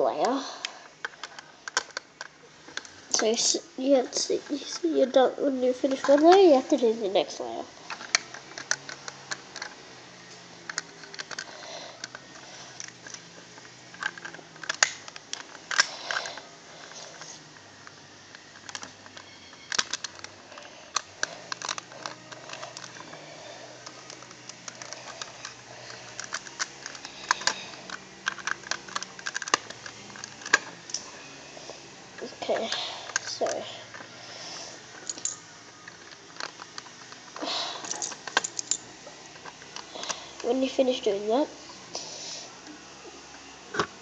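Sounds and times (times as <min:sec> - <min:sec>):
plastic bricks clicking and snapping: 0:10.7 - 0:12.2, 0:12.8 - 0:16.3, 0:18.5 - 0:23.0, 0:23.8 - 0:31.0, 0:37.8 - 0:38.8.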